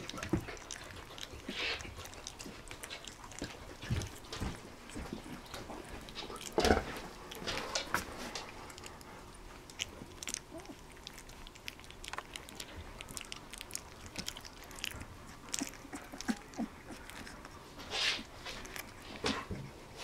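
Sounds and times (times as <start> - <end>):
puppies chewing and smacking: 0.0 - 20.0.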